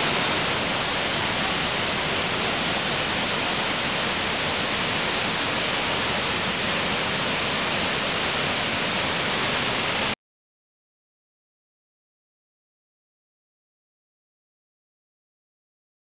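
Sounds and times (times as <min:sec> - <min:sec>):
waterfall rushing: 0:00.0 - 0:10.2.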